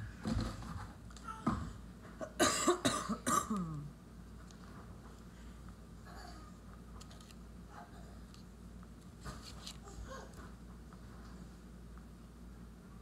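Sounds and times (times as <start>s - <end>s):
person coughing: 2.2s - 3.9s.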